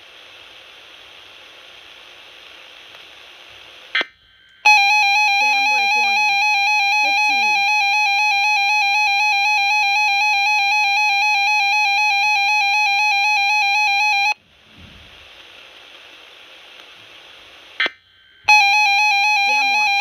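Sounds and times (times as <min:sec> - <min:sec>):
faint hiss: 0:00.0 - 0:04.7, 0:14.4 - 0:18.5
warbling electronic alert tone: 0:04.7 - 0:14.4.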